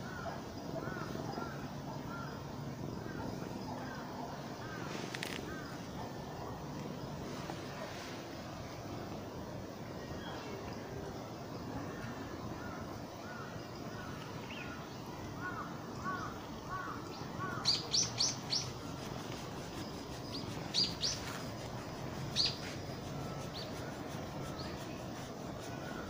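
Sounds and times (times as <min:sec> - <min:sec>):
small birds chirping: 0:11.9 - 0:26.0.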